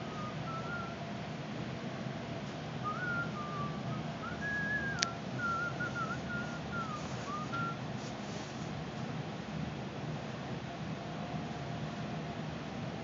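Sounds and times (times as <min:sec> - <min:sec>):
person whistling a tune: 0:00.0 - 0:01.0, 0:02.8 - 0:07.8
low background hum: 0:00.0 - 0:13.0.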